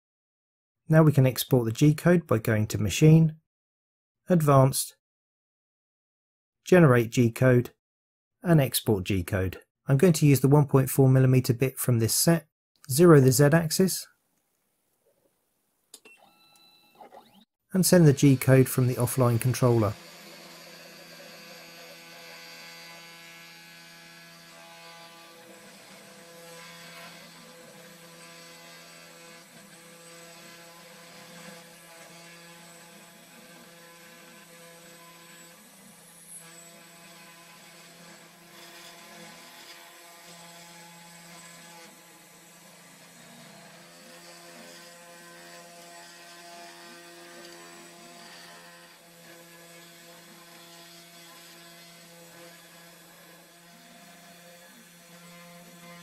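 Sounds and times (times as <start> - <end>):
cnc router spindle humming: 18.3 - 25.8.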